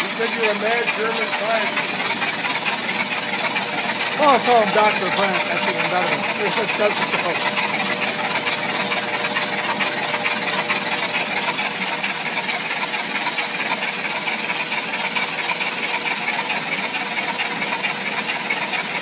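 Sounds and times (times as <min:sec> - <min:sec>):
constant hum: 0:00.0 - 0:12.0
engine turning over unfired: 0:00.0 - 0:19.0
fast fine ticking: 0:00.0 - 0:19.0.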